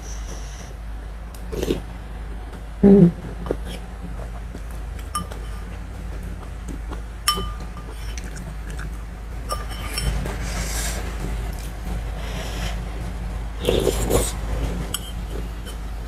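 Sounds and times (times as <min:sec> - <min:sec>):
metal spoon clinking on ceramic bowl: 0:05.2 - 0:05.6, 0:07.3 - 0:08.0, 0:09.5 - 0:10.2.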